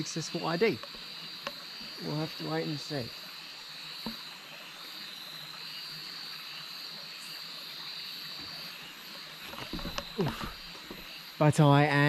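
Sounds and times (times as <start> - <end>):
insects and frogs trilling: 0.0 - 12.0
steady hiss: 0.0 - 12.0
handling noise: 9.4 - 11.1.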